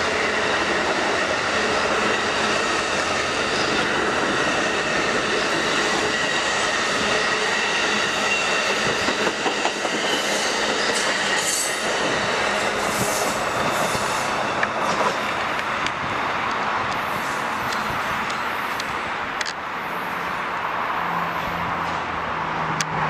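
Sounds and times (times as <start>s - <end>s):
train wheels rushing on rail: 0.0s - 23.0s.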